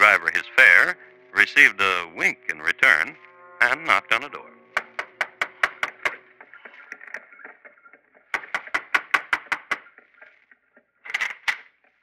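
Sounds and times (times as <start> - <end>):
knocking on wooden door: 4.8 - 6.2.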